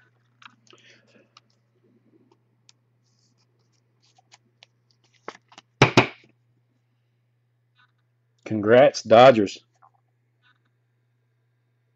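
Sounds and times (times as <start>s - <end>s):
plastic and card rustling: 3.1s - 5.7s.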